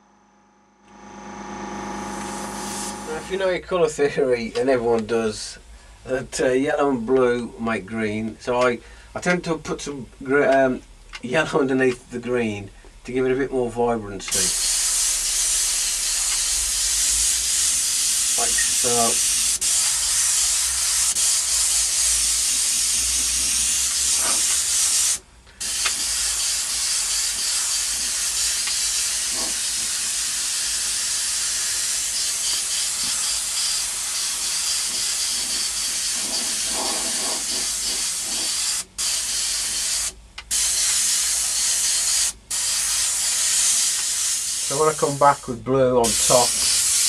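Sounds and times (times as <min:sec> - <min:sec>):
airbrush hissing: 0:01.8 - 0:03.3, 0:14.3 - 0:44.8, 0:46.0 - 0:47.0.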